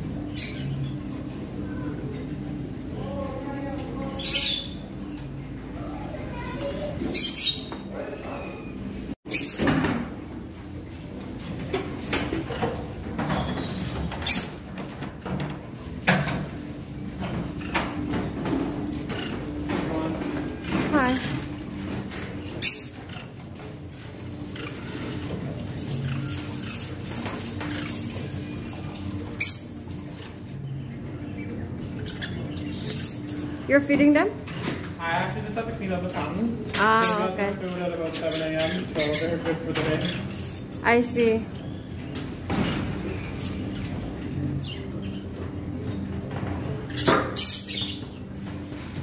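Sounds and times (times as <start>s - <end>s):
parrots squawking: 3.9s - 4.9s, 6.0s - 9.7s, 18.8s - 30.4s, 31.4s - 33.6s, 36.1s - 42.9s, 46.8s - 48.4s
bird chatter: 18.9s - 34.1s, 35.6s - 42.2s, 46.8s - 48.8s.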